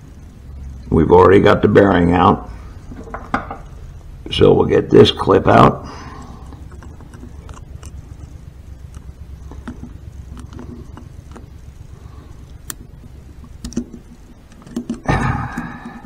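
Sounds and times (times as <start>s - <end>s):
steady low hum: 0.0s - 16.0s
faint metal clicks and ticks: 6.2s - 16.0s.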